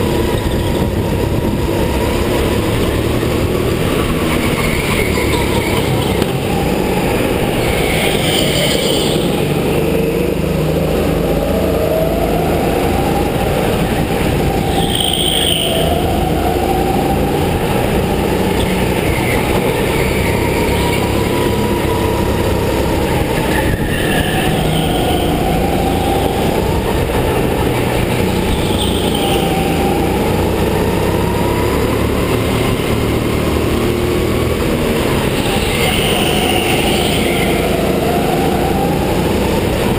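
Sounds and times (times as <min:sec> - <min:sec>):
go-kart engine whine: 0:00.0 - 0:39.9
tyre squeals: 0:07.6 - 0:09.5, 0:14.6 - 0:16.1.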